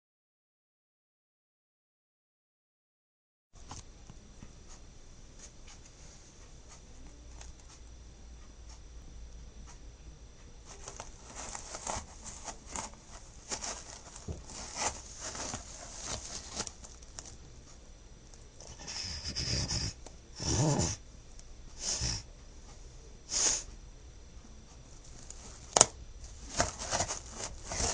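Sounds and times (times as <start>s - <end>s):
faint electrical hum: 3.6s - 27.9s
rustling and light clicking: 10.7s - 17.5s, 24.7s - 27.9s.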